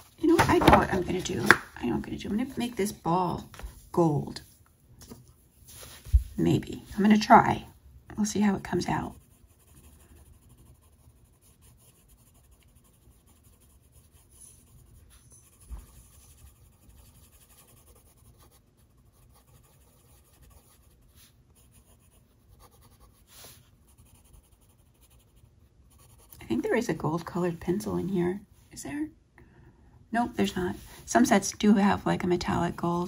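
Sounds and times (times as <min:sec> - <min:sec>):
pencil scratching on paper: 0:08.4 - 0:27.5.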